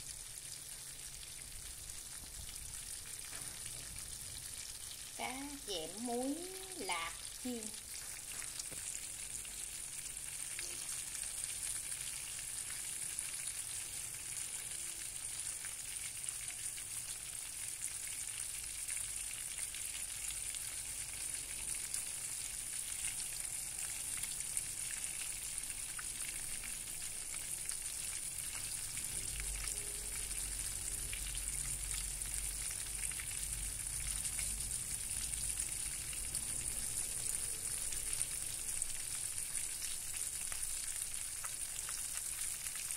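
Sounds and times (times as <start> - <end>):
fish sizzling in oil: 0.0 - 42.9
spitting oil crackles: 0.6 - 30.2.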